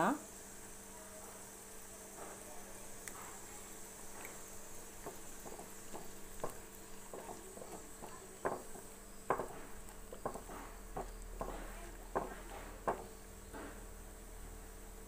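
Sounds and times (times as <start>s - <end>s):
onions simmering: 0.0s - 15.0s
spatula scraping and knocking pan: 4.1s - 13.9s.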